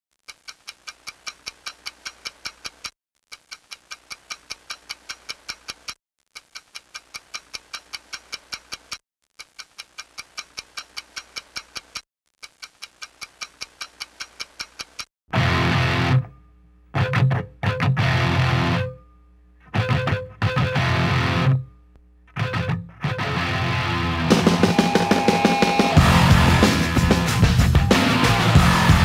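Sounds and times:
rapid clock-like ticking: 0:00.2 - 0:15.1.

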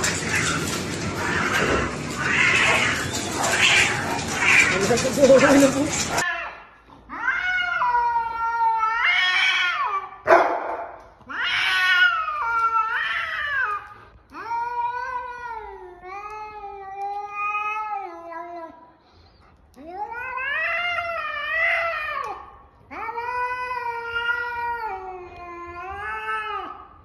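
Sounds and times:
cat yowling: 0:00.0 - 0:10.2.

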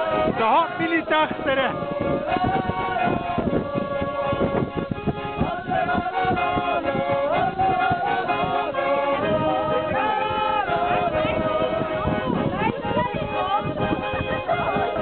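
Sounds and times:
women singing folk song: 0:00.0 - 0:01.0, 0:01.7 - 0:15.0
button accordion chords: 0:00.0 - 0:15.0.

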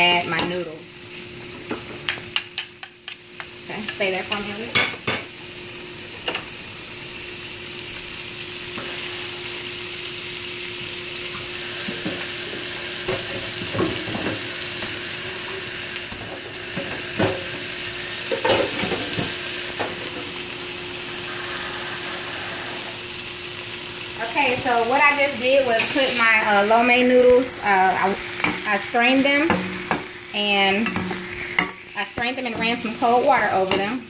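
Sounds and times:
food sizzling in a wok: 0:00.0 - 0:34.0
utensil scraping wok: 0:08.7 - 0:09.8, 0:21.0 - 0:23.2, 0:24.2 - 0:34.0.

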